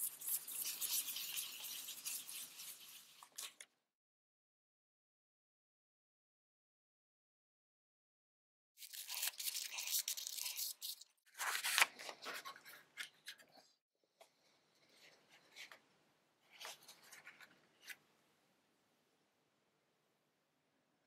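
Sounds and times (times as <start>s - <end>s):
scratchy paper rustling: 0.0s - 3.7s, 8.8s - 13.6s
paper being handled: 8.8s - 13.6s.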